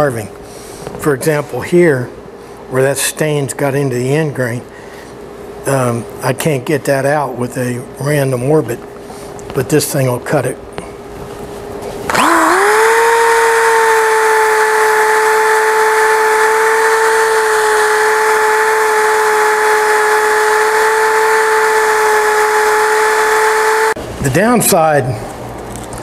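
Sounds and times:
electric drill whine: 12.1s - 24.0s
sanding disc hissing on wood: 12.2s - 24.0s.

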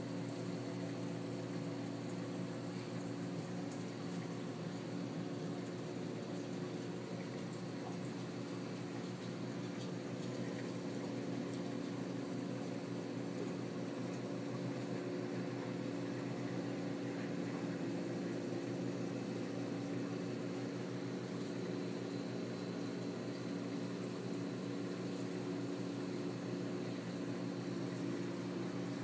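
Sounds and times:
aquarium pumps humming: 0.0s - 29.0s.

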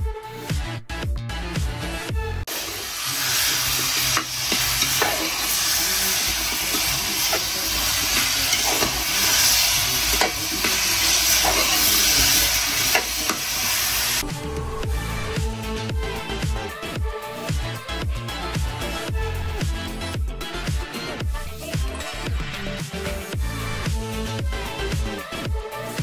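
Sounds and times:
food sizzling in hot oil: 2.5s - 14.2s
spoon scraping a metal pot: 3.2s - 13.6s.

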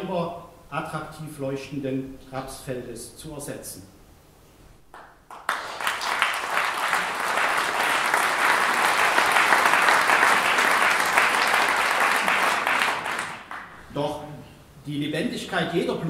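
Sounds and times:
single claps: 4.9s - 13.8s
crowd applauding: 5.0s - 13.8s.

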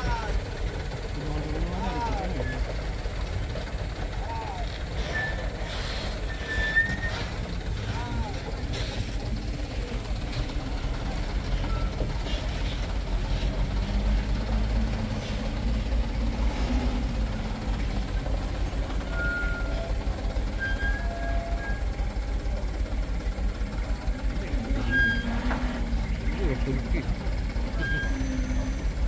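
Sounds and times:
diesel truck engine rumbling: 0.0s - 29.0s.

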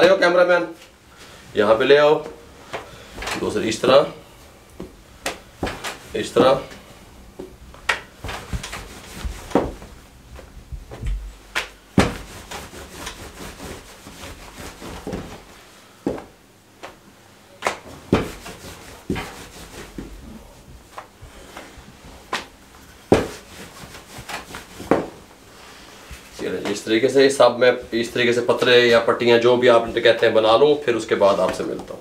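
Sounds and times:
rolling pin rolling dough on board: 4.8s - 11.2s, 12.0s - 17.0s, 17.6s - 25.3s
rolling pin knocking on board: 12.0s - 12.3s, 17.6s - 18.5s, 23.1s - 23.4s, 24.8s - 25.2s.

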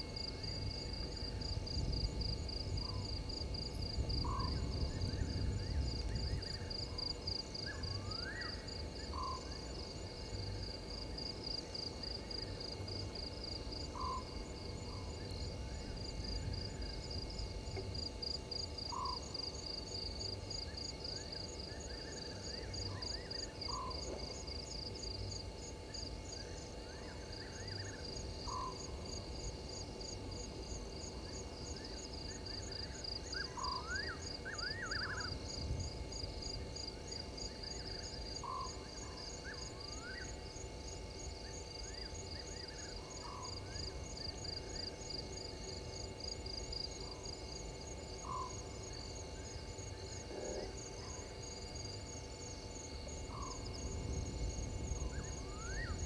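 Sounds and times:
frogs calling: 27.1s - 29.2s, 32.0s - 35.4s, 37.6s - 40.4s, 48.1s - 51.5s, 53.3s - 53.8s.

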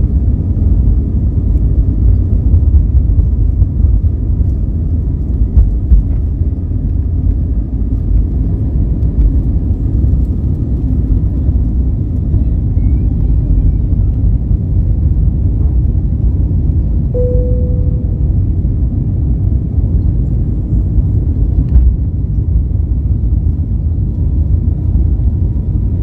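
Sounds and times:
jet engines at takeoff thrust: 0.0s - 26.0s.

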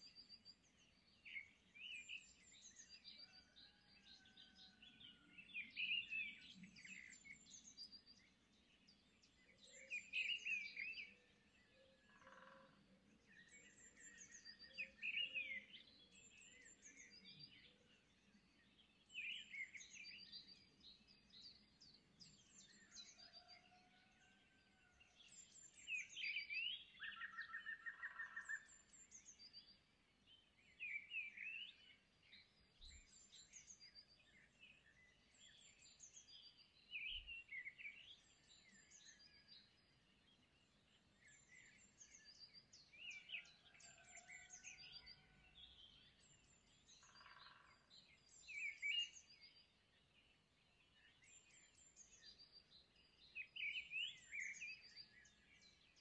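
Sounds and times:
bird chirping: 25.2s - 56.0s.

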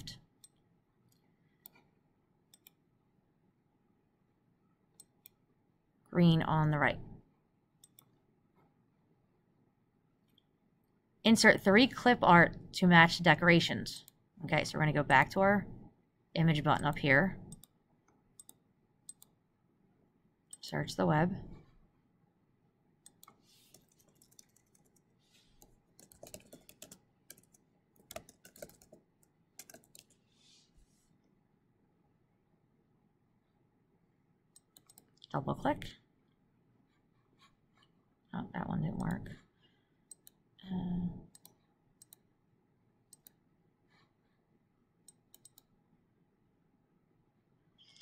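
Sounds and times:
computer mouse clicks: 0.4s - 1.9s, 2.5s - 2.8s, 5.0s - 5.4s, 7.8s - 8.2s, 16.8s - 19.4s, 23.0s - 30.2s, 34.6s - 35.3s, 40.1s - 40.4s, 41.3s - 42.3s, 43.1s - 43.4s, 45.0s - 45.7s
faint keyboard typing: 2.5s - 2.8s, 18.4s - 19.4s, 23.0s - 30.3s, 34.6s - 35.3s, 40.1s - 40.4s, 41.2s - 42.3s, 45.0s - 45.7s.

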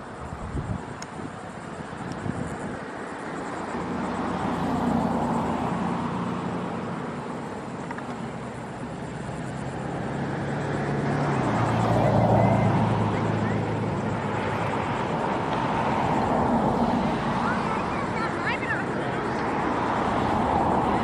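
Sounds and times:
road noise: 0.0s - 21.0s
vehicle engine passing: 8.5s - 21.0s.

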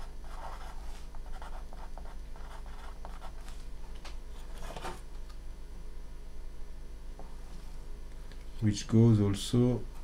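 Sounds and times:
pen scratching on paper: 0.0s - 3.4s.

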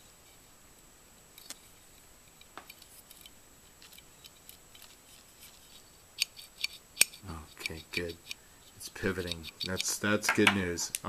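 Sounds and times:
metal parts clicking and tapping: 6.2s - 11.0s.

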